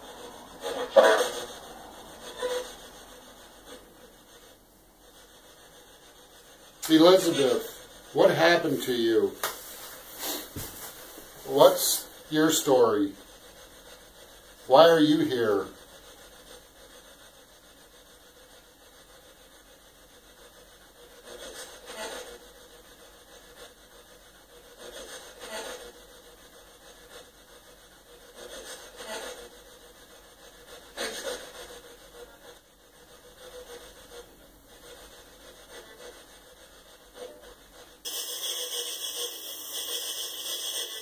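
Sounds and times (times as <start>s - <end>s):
soft breathing: 9.6s - 14.5s.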